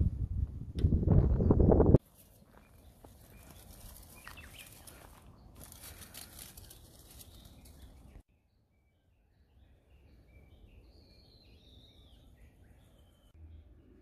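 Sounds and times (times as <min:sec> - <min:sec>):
soft crackling rustle: 0:02.0 - 0:08.2
bird chirp: 0:02.4 - 0:14.0.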